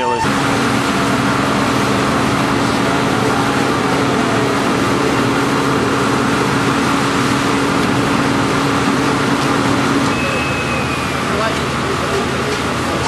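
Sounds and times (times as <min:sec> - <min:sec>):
fire engine running: 0:00.0 - 0:13.0.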